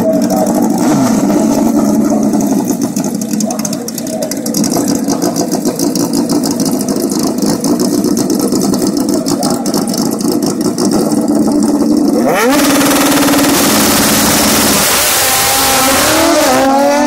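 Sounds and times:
motorcycle engines revving: 0.0s - 17.0s
motorcycles accelerating: 0.0s - 17.0s.

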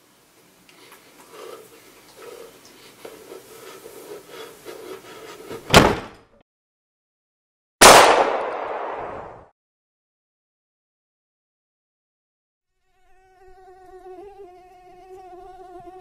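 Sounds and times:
pistol shot: 7.8s - 9.5s
sharp crack: 7.8s - 9.5s.

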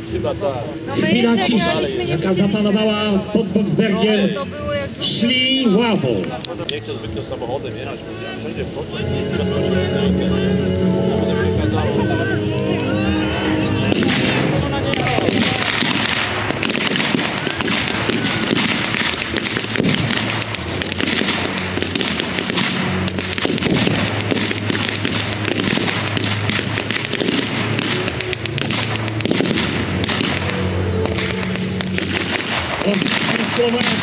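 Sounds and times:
background music: 0.0s - 34.0s
pyrotechnics crackling and popping: 13.9s - 34.0s.

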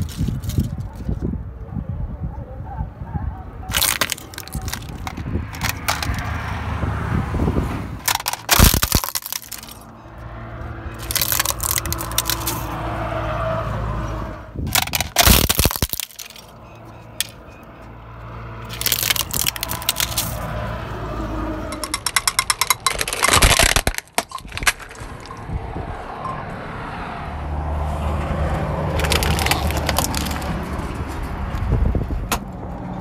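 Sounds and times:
plastic toys cracking under tyre: 0.0s - 1.2s, 3.7s - 6.6s, 8.0s - 10.2s, 10.8s - 12.9s, 14.6s - 17.6s, 18.6s - 20.6s, 21.7s - 25.4s, 28.8s - 30.8s
car engine and tyres rumbling: 0.0s - 33.0s.

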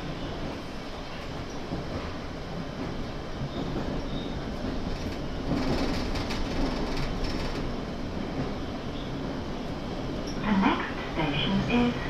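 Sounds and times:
train wheels rumbling on rail: 0.0s - 12.0s
rapid rail clicks: 4.5s - 8.6s.

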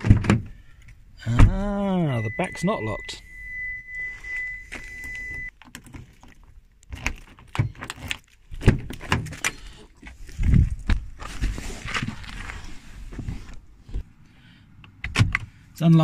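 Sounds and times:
car door opening: 1.2s - 5.5s
car warning tone: 1.2s - 5.5s.

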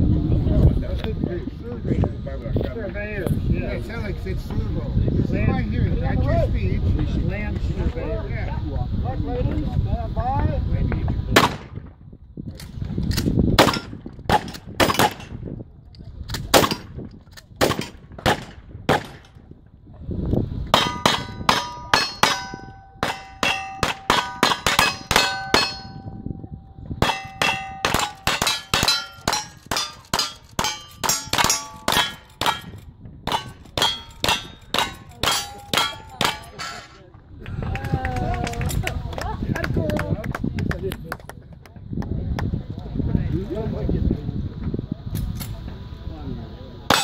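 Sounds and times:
metallic clang of steel targets: 20.7s - 26.4s, 27.0s - 37.0s.

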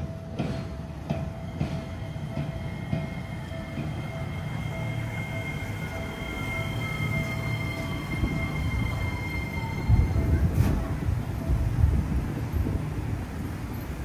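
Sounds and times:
train low rumble: 0.0s - 14.0s
falling pitch tone: 1.9s - 11.0s.

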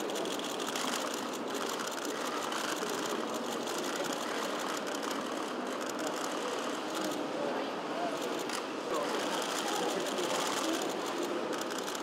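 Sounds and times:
background hubbub: 0.0s - 12.0s
camera shutters clicking: 9.9s - 12.0s.

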